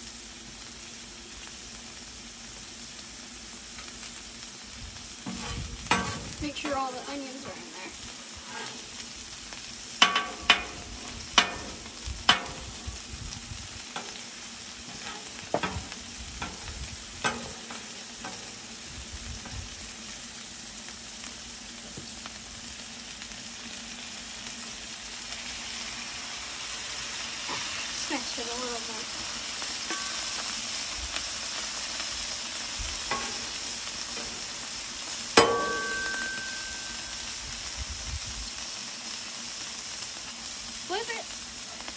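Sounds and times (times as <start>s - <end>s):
patties sizzling on a griddle: 0.0s - 41.9s
metal spatulas scraping griddle: 5.2s - 6.8s, 8.4s - 9.0s, 14.9s - 16.6s.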